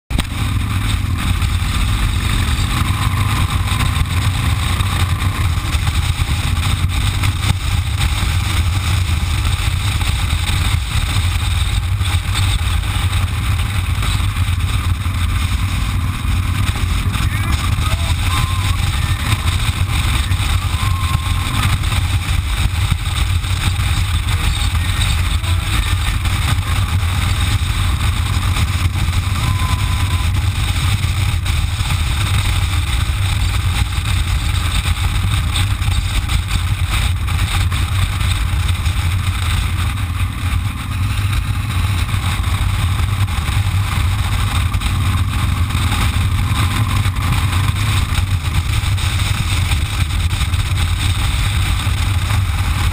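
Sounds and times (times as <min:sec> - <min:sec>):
motorcycle engine drone: 0:00.0 - 0:52.9
wind and road noise: 0:00.0 - 0:52.9.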